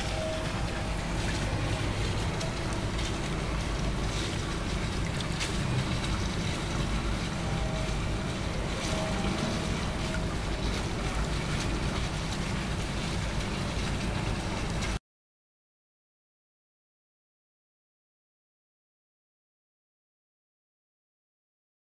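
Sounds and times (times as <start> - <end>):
low rumble: 0.0 - 12.7
water running from a pipe into a pool: 0.0 - 15.0.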